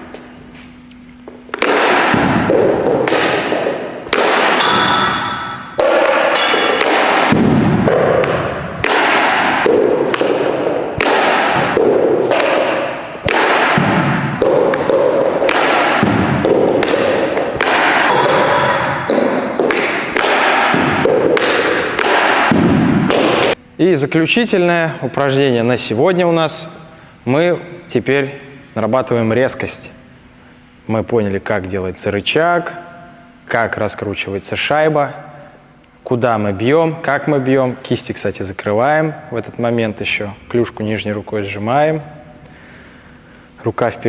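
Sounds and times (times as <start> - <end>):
hockey stick shooting pucks: 1.5 - 23.6.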